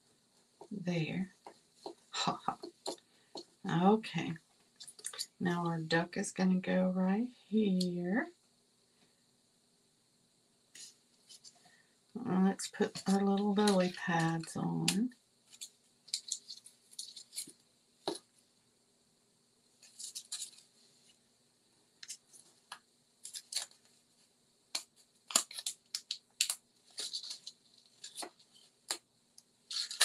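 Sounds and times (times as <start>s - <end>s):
paper crinkling and rustling: 12.8s - 18.2s, 19.8s - 20.7s, 25.2s - 29.0s, 29.7s - 30.0s.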